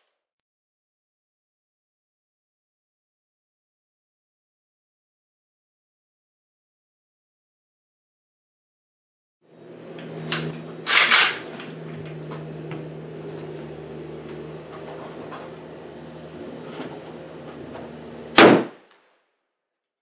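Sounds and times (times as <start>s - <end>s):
steady low hum: 9.4s - 19.0s
gunshots: 18.4s - 19.0s.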